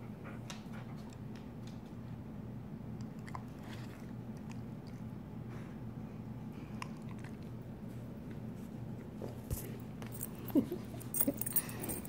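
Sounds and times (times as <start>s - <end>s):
steady low hum: 0.0s - 12.0s
dogs licking and mouthing: 3.0s - 5.3s, 6.6s - 8.4s.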